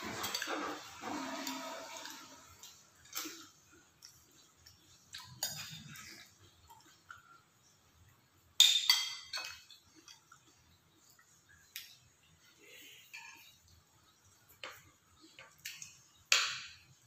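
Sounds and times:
cutlery clinking on plates: 0.0 - 4.2, 8.6 - 9.9, 13.0 - 13.6, 15.4 - 16.9.

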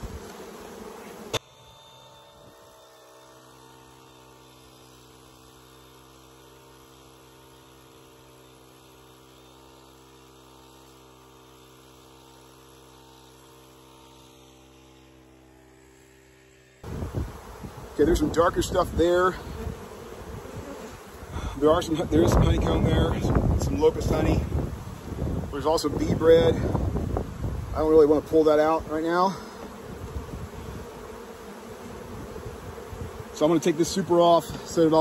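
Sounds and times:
honeybees buzzing: 0.0 - 35.0
faint steady tonal hum: 1.3 - 5.4.

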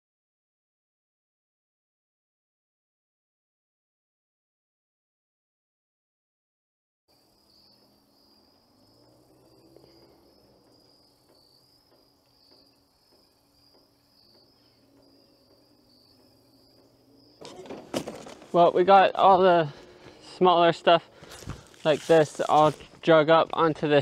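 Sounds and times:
faint insects chirring: 7.1 - 24.0.

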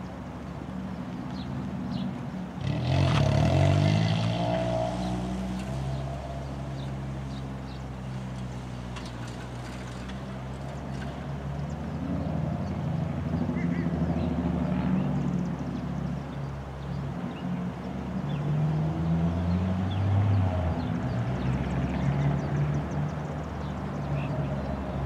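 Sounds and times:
engine droning: 0.0 - 22.0.

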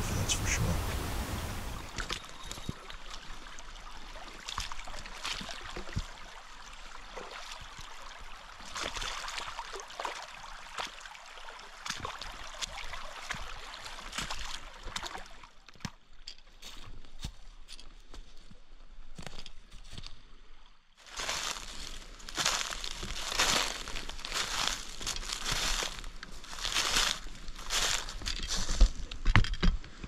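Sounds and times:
running water trickling: 0.0 - 15.3
boots wading through creek: 0.0 - 18.6, 21.0 - 29.0
splashes and clacks on rocks: 4.4 - 6.2, 8.6 - 11.0, 11.8 - 18.0, 21.7 - 30.0.

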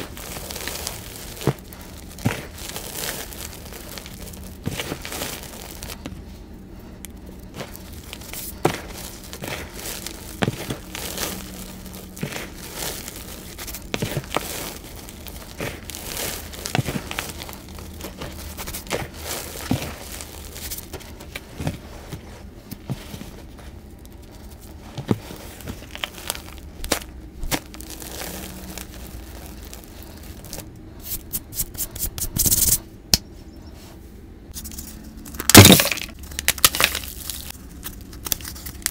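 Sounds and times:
sharp crackles: 0.0 - 6.2, 6.8 - 21.7, 23.3 - 31.7
chalk crunching and crumbling: 0.0 - 32.8, 34.5 - 38.9.

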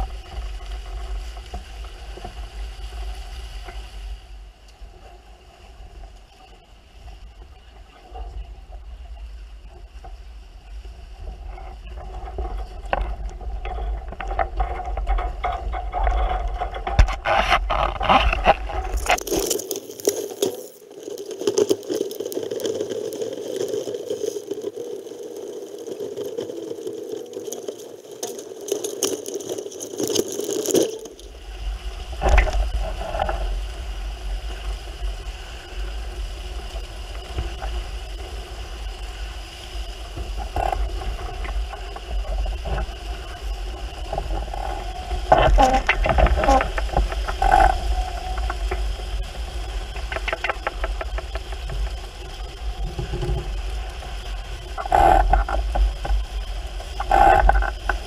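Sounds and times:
water washing around hulls: 0.0 - 58.0
boat gear clattering and scraping: 12.9 - 20.8, 27.4 - 31.3.

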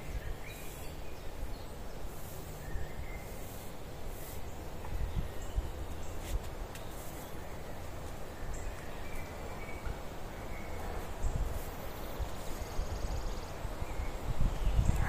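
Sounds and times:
wind rumbling on microphone: 0.0 - 6.7, 9.8 - 15.0.

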